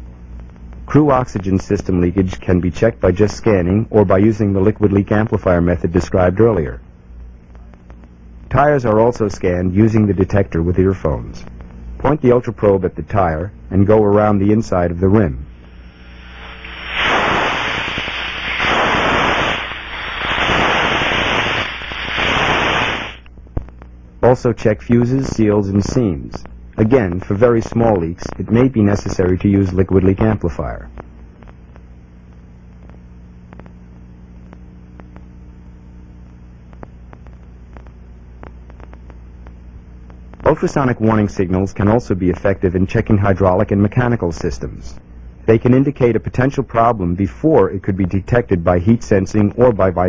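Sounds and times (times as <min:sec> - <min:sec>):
electrical hum: 0:00.0 - 0:50.0
air escaping with rushing hiss: 0:15.5 - 0:23.3
faint clicks: 0:36.2 - 0:40.4.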